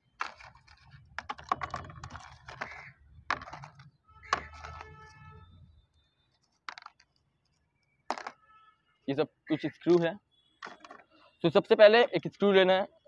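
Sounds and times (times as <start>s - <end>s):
plastic parts clicking and rattling: 0.0s - 5.3s, 6.4s - 8.4s, 10.6s - 11.2s.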